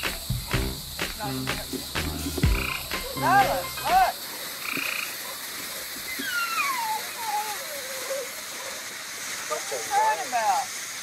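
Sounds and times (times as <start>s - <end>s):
frogs croaking chorus: 0.0s - 10.6s
ground fountain firework hissing: 0.0s - 11.0s
loud short frog calls: 2.5s - 5.2s.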